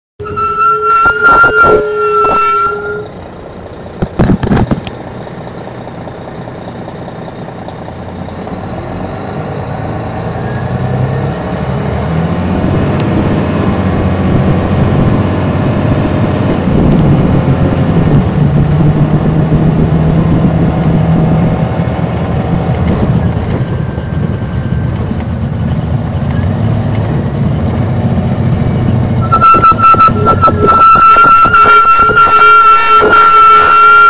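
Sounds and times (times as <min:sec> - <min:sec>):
faint high whistle: 0:00.2 - 0:03.2, 0:29.2 - 0:34.0
diesel coach engine accelerating: 0:00.2 - 0:34.0.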